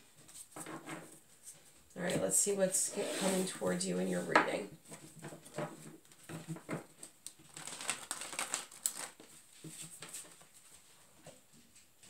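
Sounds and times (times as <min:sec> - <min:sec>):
cards being shuffled by hand: 0:06.1 - 0:10.8.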